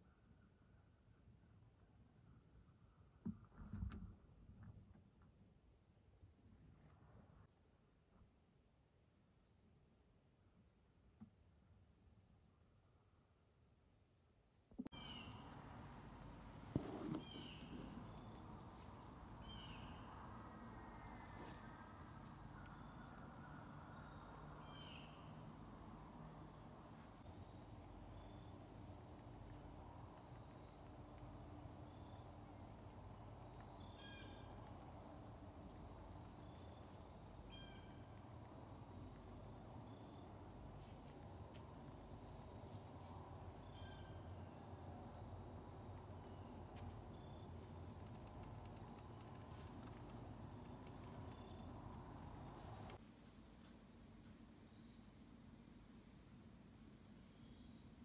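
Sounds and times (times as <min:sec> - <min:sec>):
insect trill: 0:14.5 - 0:55.0.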